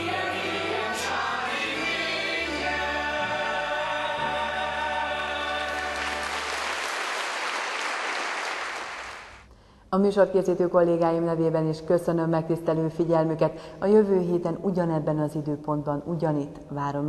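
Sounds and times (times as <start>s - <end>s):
cast singing with band: 0.0s - 6.2s
audience applause: 5.4s - 9.4s.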